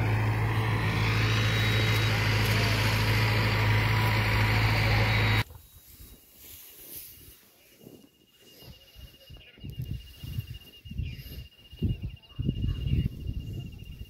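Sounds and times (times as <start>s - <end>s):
vehicle engine humming: 0.0s - 5.4s
road noise: 0.0s - 5.5s.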